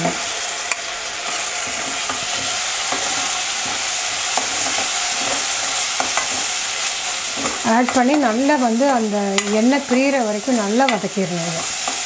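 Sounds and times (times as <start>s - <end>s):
paste sizzling in butter: 0.0s - 12.0s
spoon clicking against pan: 9.3s - 9.6s, 10.8s - 11.0s.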